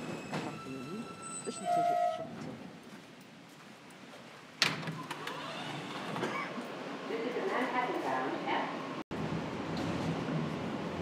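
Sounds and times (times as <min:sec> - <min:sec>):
train brakes squealing: 0:00.0 - 0:02.4
sliding doors clunking open: 0:04.6 - 0:06.7.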